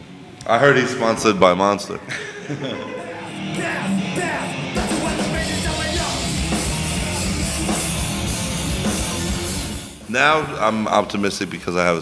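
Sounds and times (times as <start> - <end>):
heavy hardcore band music: 2.9 - 10.1.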